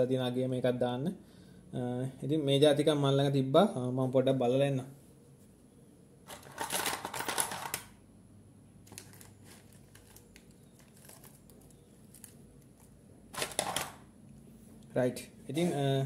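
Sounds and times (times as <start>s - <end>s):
rustling of small things: 6.3s - 8.0s, 8.8s - 14.1s.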